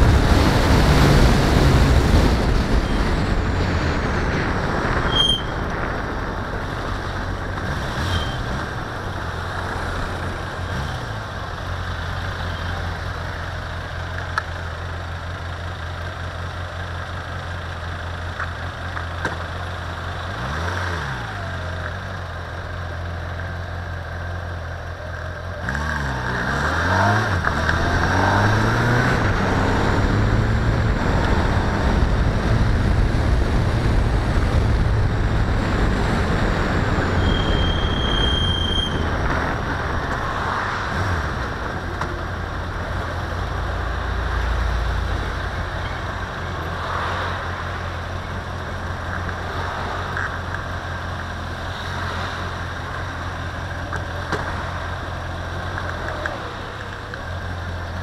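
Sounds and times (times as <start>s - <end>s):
road and wind noise: 0.0s - 58.0s
car engine accelerating: 25.6s - 37.9s.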